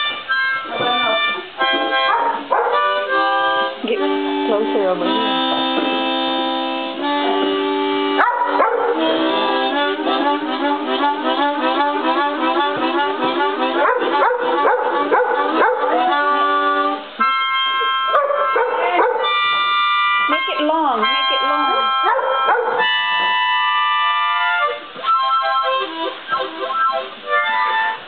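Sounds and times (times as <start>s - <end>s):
harmonica playing chords: 0.0s - 28.0s
dog howling: 8.2s - 9.0s, 13.8s - 16.4s, 17.8s - 19.4s.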